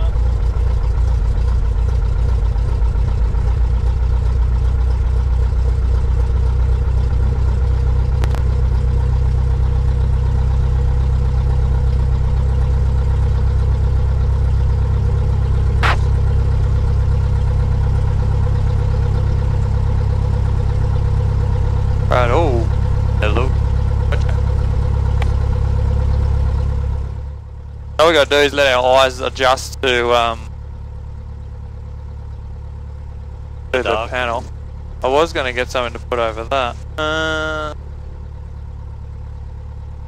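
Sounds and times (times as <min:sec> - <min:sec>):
aircraft engine idling: 0:00.0 - 0:40.0
short sharp clicks: 0:15.8 - 0:16.2.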